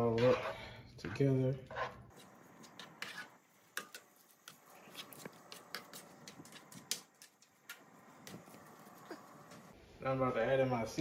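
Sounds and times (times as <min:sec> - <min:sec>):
spoon scraping a frying pan: 0:00.0 - 0:00.7, 0:01.6 - 0:07.8.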